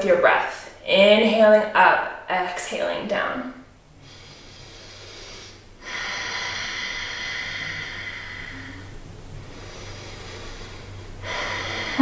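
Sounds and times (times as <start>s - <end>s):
woman breathing through nose: 4.0s - 12.0s.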